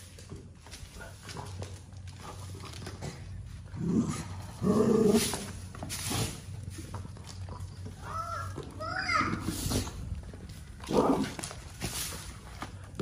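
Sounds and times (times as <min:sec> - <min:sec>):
dog growling and snarling: 0:02.2 - 0:06.4, 0:10.8 - 0:11.8.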